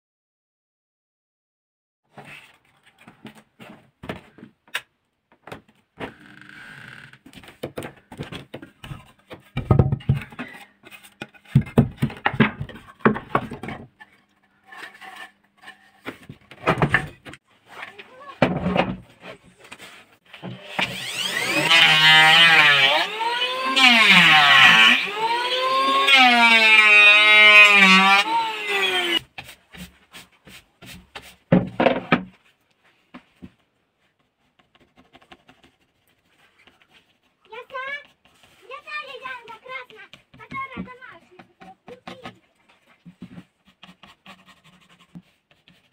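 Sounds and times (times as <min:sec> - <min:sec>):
wooden boards knocking and scraping: 0:07.2 - 0:14.2, 0:15.9 - 0:21.2, 0:29.0 - 0:32.4
electric hand planer motor whine: 0:20.5 - 0:29.2
pencil scratching: 0:34.5 - 0:39.9, 0:43.2 - 0:45.9.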